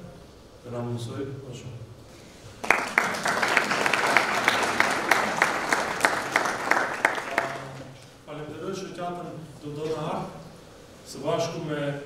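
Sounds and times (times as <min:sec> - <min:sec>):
sharp nearby claps: 0:02.6 - 0:07.9
audience applauding: 0:02.6 - 0:08.0.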